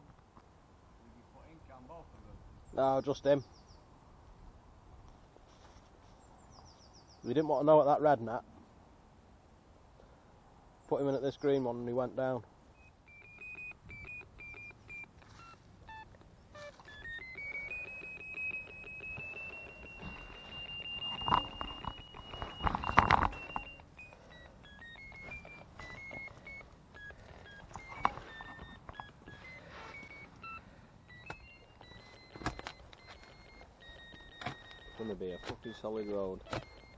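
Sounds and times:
electronic locator beeping: 0:12.8 - 0:36.9.

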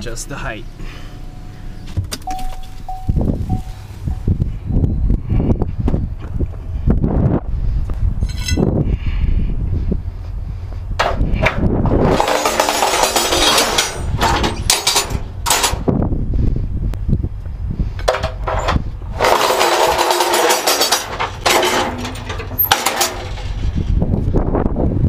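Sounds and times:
wind rumble on microphone: 0:02.0 - 0:12.4, 0:13.7 - 0:19.4, 0:23.1 - 0:25.0
metal ramps scraping on concrete: 0:08.2 - 0:08.7, 0:11.0 - 0:15.9, 0:18.0 - 0:24.0.

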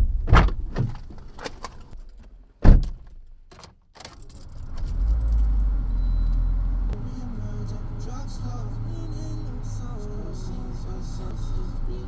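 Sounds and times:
car door shutting: 0:00.2 - 0:01.6, 0:02.6 - 0:05.5
car keys jangling: 0:03.1 - 0:06.4
car engine starting and humming: 0:04.0 - 0:12.0.

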